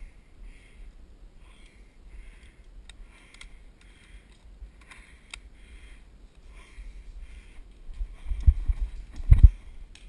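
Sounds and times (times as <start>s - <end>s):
faint clicks: 1.5s - 1.8s, 2.4s - 5.5s, 7.7s - 10.0s.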